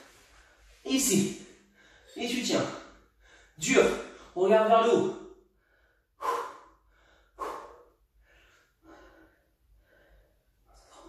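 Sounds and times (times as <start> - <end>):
man breathing hard: 1.6 - 2.2, 2.8 - 4.4, 5.4 - 11.0.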